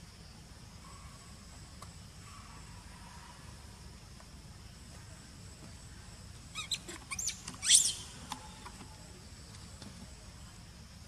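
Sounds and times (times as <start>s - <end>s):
monkey squealing: 6.6s - 8.1s.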